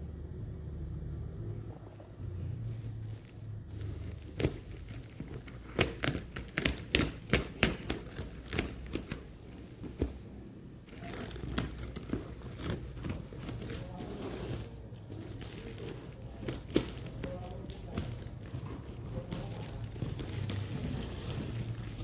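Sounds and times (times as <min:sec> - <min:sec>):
plastic crinkling: 0:02.7 - 0:22.0
scissors cutting plastic: 0:03.8 - 0:10.0, 0:10.9 - 0:22.0.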